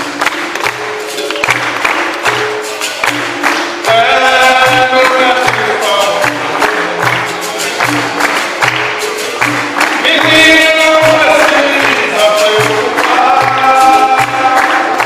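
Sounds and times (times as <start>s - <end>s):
hand drum playing: 0.0s - 15.0s
pandeiros: 0.0s - 15.0s
voices singing: 3.9s - 15.0s.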